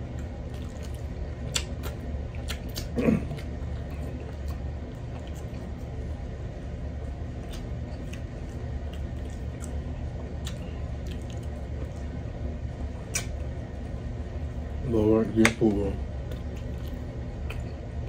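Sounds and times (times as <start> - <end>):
steady low hum: 0.0 - 18.0
wet chewing smacks: 0.1 - 5.9, 7.3 - 12.2.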